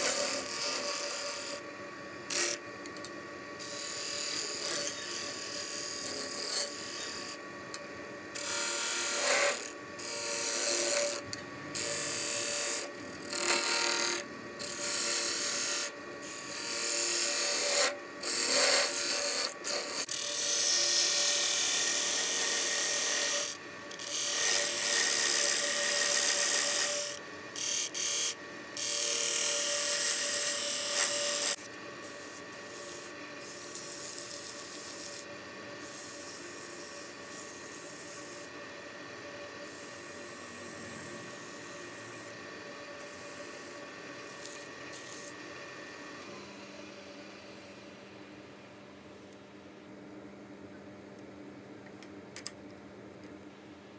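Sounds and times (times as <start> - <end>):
lathe motor hum: 0.0 - 1.6, 8.4 - 48.2.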